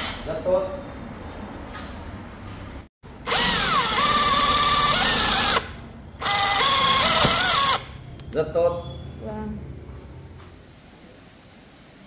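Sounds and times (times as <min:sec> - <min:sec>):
power drill motor whine: 0:03.2 - 0:07.9.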